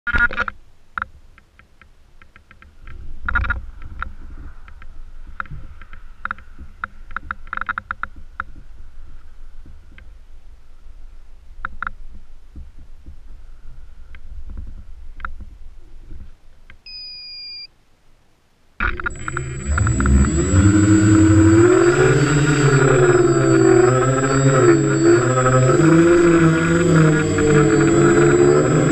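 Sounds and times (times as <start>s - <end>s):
wind rumble on microphone: 2.7s - 16.4s
faint steady whine: 16.7s - 28.9s
scattered clicks: 18.8s - 28.9s.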